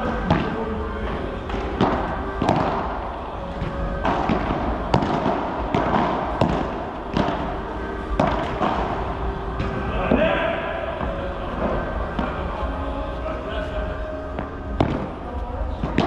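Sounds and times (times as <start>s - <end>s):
padel racket striking ball: 0.2s - 3.0s, 3.6s - 10.2s.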